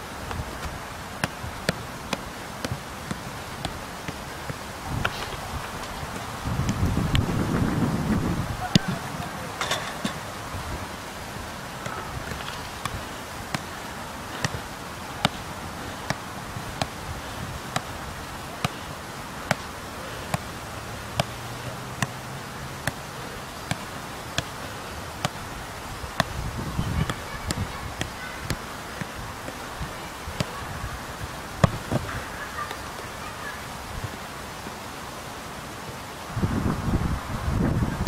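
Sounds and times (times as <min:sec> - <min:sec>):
outdoor hiss: 0:00.0 - 0:38.0
football thuds: 0:00.2 - 0:10.3, 0:11.8 - 0:18.0, 0:21.2 - 0:21.4, 0:22.8 - 0:23.0, 0:23.7 - 0:24.6, 0:31.6 - 0:32.1.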